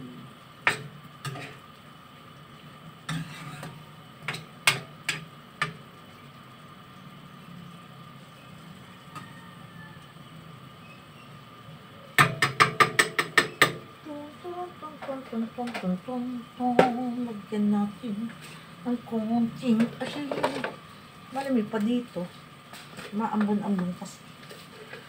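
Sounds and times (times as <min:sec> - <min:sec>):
spatula clanks: 0:00.6 - 0:01.6, 0:03.1 - 0:05.8
metal spatula scraping a wok: 0:00.7 - 0:01.6, 0:03.1 - 0:04.8, 0:24.3 - 0:25.0.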